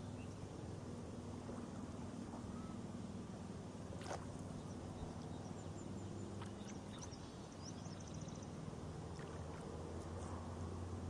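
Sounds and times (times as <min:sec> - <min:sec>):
steady low hum: 0:00.0 - 0:11.0
faint bird chirps: 0:02.4 - 0:02.8.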